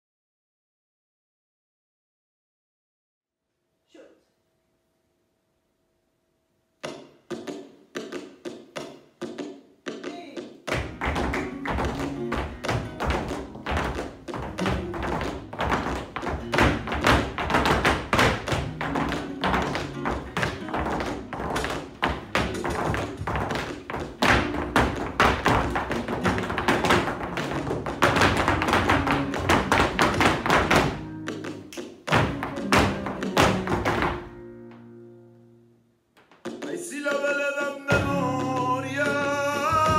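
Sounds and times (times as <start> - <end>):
sharp percussive taps: 6.8 - 34.3, 36.2 - 37.3
flamenco music: 6.8 - 39.9.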